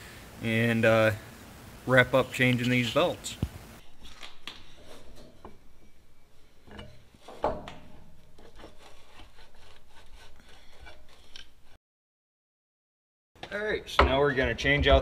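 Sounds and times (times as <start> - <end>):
rubbing and scraping of parts: 3.8 - 11.8.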